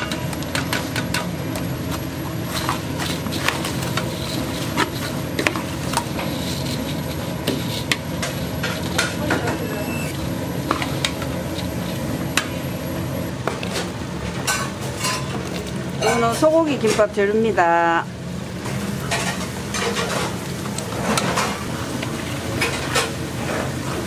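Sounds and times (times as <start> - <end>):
steady low hum: 0.0 - 14.7.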